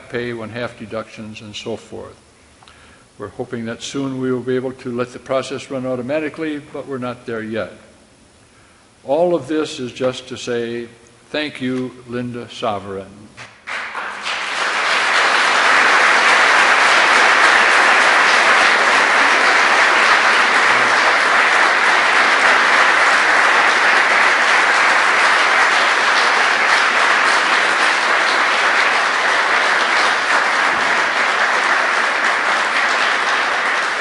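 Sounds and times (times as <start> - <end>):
audience applauding: 13.6 - 34.0.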